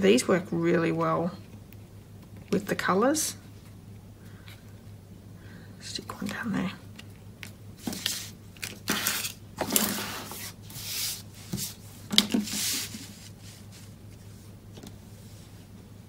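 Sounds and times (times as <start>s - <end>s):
low electrical hum: 0.0s - 16.0s
paper rustling and scraping: 7.8s - 14.6s.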